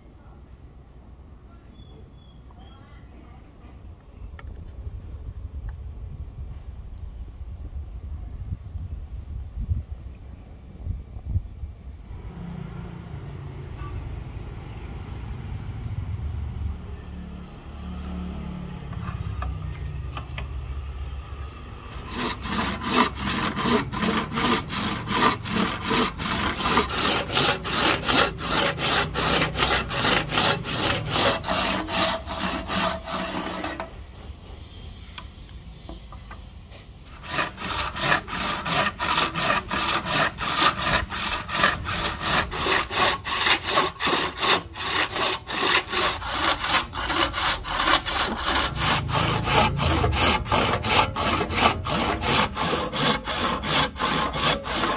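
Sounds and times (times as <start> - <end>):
hand saw cutting wood: 21.8 - 34.0, 36.7 - 54.9.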